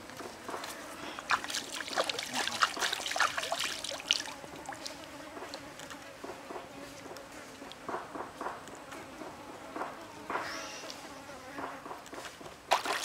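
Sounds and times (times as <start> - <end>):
stream trickling: 1.1 - 5.6, 12.7 - 13.0
hands splashing in water: 1.3 - 4.8, 12.7 - 13.0.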